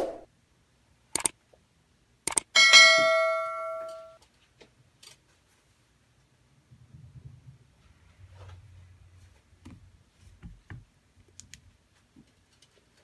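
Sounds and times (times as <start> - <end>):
short clicks: 1.1 - 1.4, 2.3 - 2.5
metallic bell-like ding: 2.6 - 4.2.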